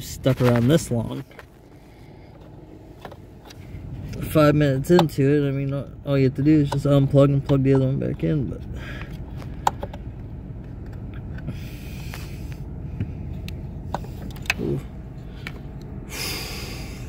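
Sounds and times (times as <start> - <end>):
steady low hum: 0.0 - 17.0
person breathing heavily: 8.7 - 9.6, 11.5 - 12.9, 15.2 - 17.0.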